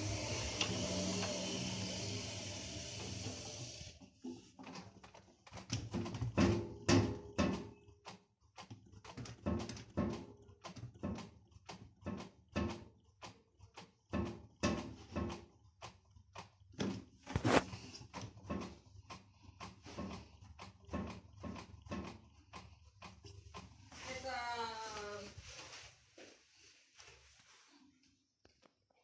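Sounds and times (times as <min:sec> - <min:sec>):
washing machine drum whirring: 0:00.0 - 0:25.9
laundry knocking inside metal drum: 0:05.8 - 0:07.8, 0:09.2 - 0:10.3, 0:14.1 - 0:15.4.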